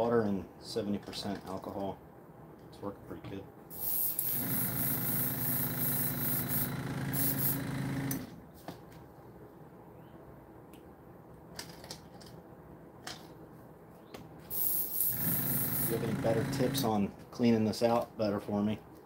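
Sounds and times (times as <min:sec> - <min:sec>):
airbrush hissing: 0:03.7 - 0:07.6, 0:14.5 - 0:16.9
compressor motor humming: 0:04.0 - 0:08.3, 0:14.6 - 0:17.0.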